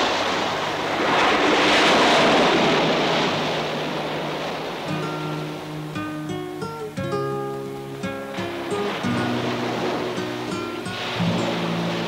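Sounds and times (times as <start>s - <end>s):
ocean surf washing onto beach: 0.0s - 12.0s
plucked guitar notes: 4.8s - 12.0s.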